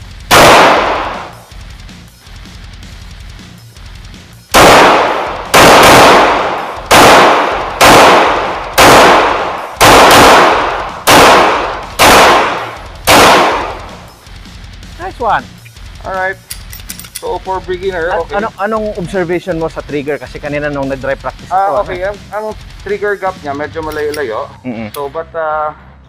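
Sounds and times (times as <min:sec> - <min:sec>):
pistol shots: 0:00.3 - 0:01.4, 0:04.5 - 0:14.0.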